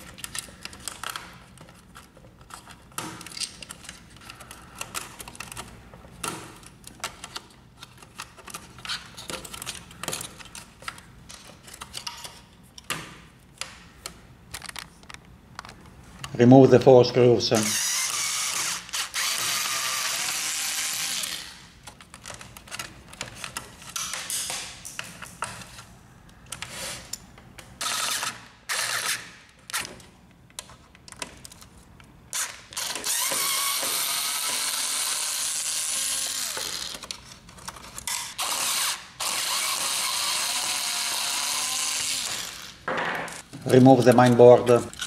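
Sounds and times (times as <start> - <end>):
electric screwdriver motor running: 17.6 - 21.6, 27.8 - 29.3, 32.4 - 37.0, 38.1 - 42.8.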